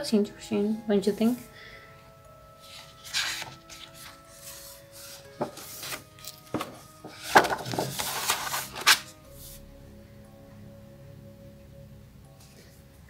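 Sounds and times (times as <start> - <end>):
paper page rustling: 2.6 - 9.6.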